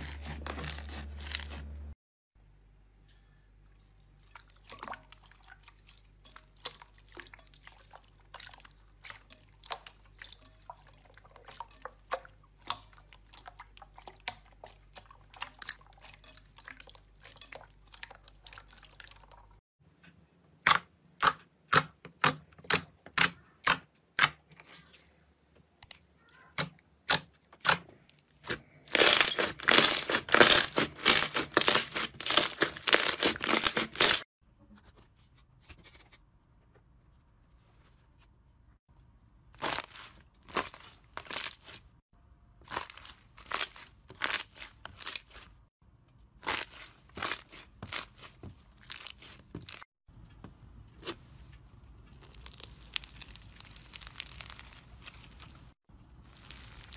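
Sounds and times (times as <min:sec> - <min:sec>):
slime squishing: 0:00.0 - 0:01.9, 0:04.2 - 0:19.6, 0:25.8 - 0:34.2, 0:39.6 - 0:41.9, 0:42.6 - 0:45.6, 0:46.4 - 0:49.8, 0:50.9 - 0:56.9
slime crackling: 0:28.4 - 0:34.2, 0:39.6 - 0:41.8, 0:51.9 - 0:56.9
slime popping: 0:52.1 - 0:55.6.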